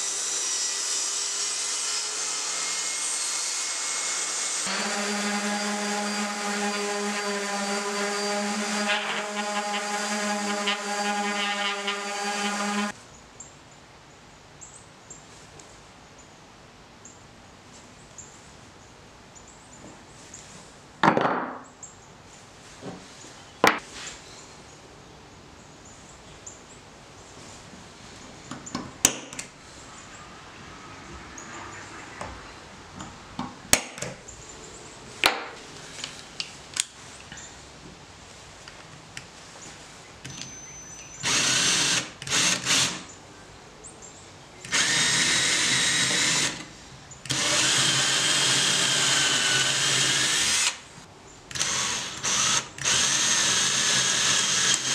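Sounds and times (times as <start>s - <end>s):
orbital sander on wood: 4.6s - 12.9s.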